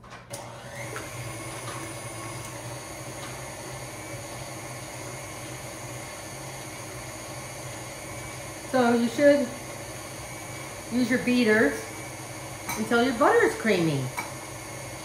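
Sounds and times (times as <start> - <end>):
electric stand mixer running: 0.0 - 15.0.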